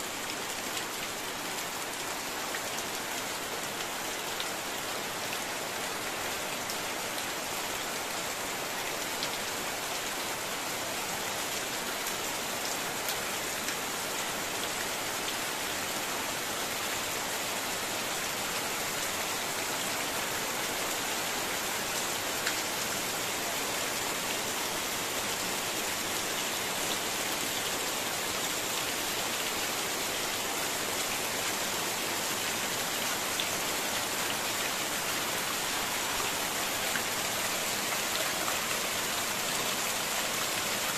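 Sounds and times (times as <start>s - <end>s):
heavy rain on a metal roof: 0.0s - 40.9s.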